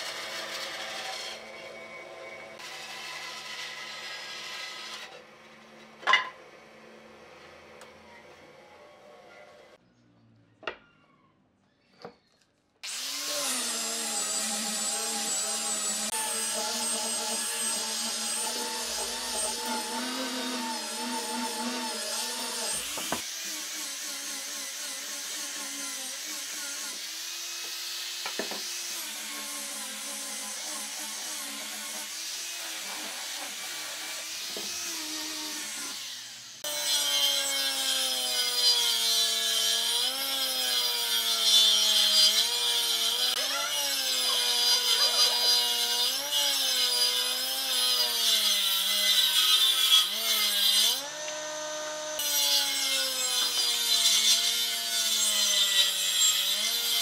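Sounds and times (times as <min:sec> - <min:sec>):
angle grinder sanding wood: 0:00.0 - 0:01.9, 0:12.8 - 0:57.0
planer whine cutting board: 0:12.8 - 0:27.0, 0:29.8 - 0:35.9.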